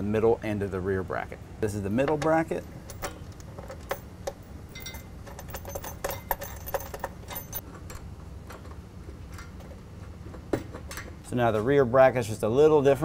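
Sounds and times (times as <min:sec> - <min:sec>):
small metal clicks and clinks: 0:02.5 - 0:08.6.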